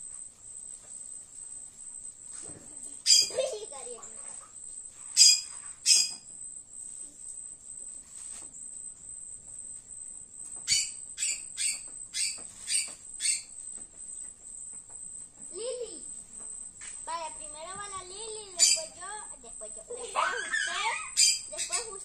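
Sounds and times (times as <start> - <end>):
high-pitched insect drone: 15.6 - 22.0.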